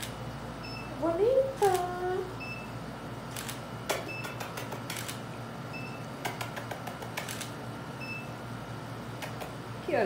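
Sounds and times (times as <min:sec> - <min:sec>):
camera shutter clicking: 0:03.3 - 0:03.6, 0:04.8 - 0:05.2, 0:07.2 - 0:07.6.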